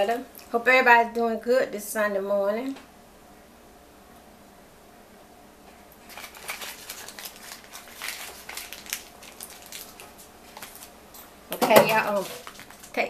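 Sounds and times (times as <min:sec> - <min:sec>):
wrapper being crumpled: 0:06.0 - 0:13.0.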